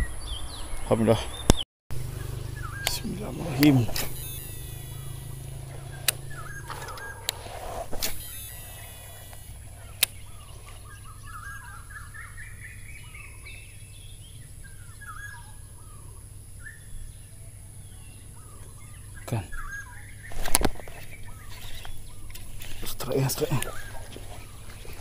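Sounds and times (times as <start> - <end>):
birds chirping: 0.0 - 25.0
rustling: 2.0 - 11.0.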